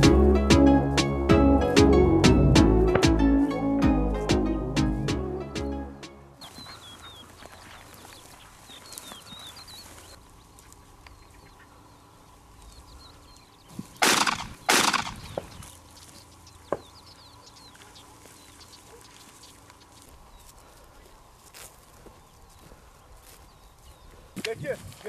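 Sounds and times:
shotgun blasts: 0:14.0 - 0:15.4.

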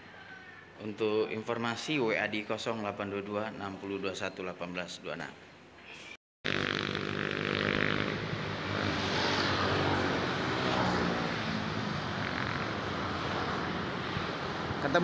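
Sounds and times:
road noise: 0:06.5 - 0:15.0
vehicles passing: 0:06.8 - 0:15.0.

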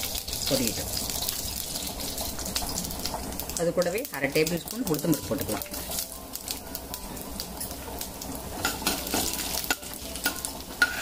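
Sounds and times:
seeds crackling and popping: 0:00.0 - 0:10.6
seeds sizzling in hot oil: 0:00.0 - 0:11.0
steel ladle stirring in pan: 0:08.6 - 0:11.0.

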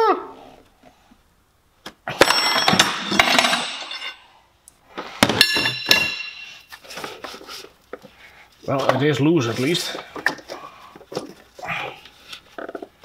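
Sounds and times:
metal tools clanking on engine parts: 0:02.2 - 0:04.2, 0:05.2 - 0:06.7.

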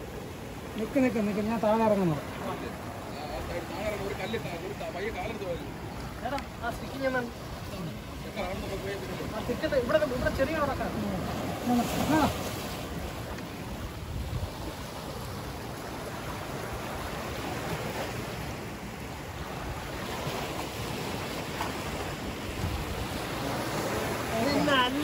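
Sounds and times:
sea surf against rocks: 0:00.0 - 0:25.0
wind on microphone: 0:09.9 - 0:25.0.

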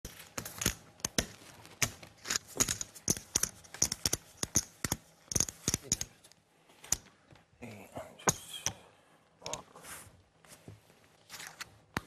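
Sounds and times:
poker chips clicking: 0:00.4 - 0:06.1.

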